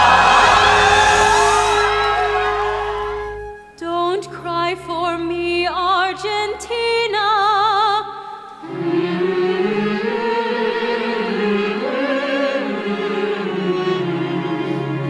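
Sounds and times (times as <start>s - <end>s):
orchestral music: 0.0s - 4.4s
low accompaniment: 0.0s - 7.1s
woman singing with vibrato: 3.7s - 11.4s.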